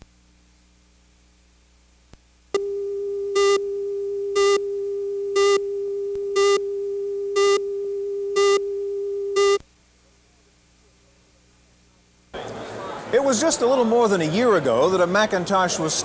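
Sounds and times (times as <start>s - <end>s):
steady line-up tone: 2.5s - 9.7s
buzzy countdown beeps: 2.6s - 9.6s.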